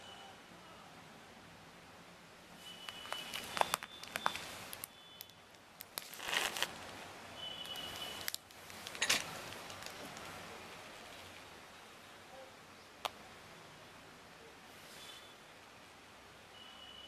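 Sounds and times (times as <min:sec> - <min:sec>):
fingers clicking and rustling: 0:02.8 - 0:04.9
plastic packet rustling: 0:02.8 - 0:04.9, 0:05.8 - 0:06.8, 0:07.6 - 0:10.4.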